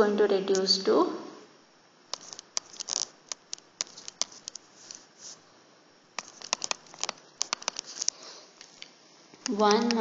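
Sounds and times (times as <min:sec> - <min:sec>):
stylus tapping and scraping on screen: 0:02.1 - 0:05.4, 0:06.2 - 0:10.0.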